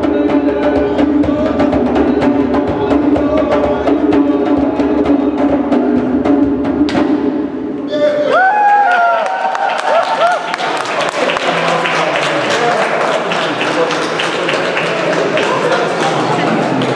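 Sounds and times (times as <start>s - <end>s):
djembe drums played fast: 0.0s - 7.7s
people whooping: 7.9s - 11.7s.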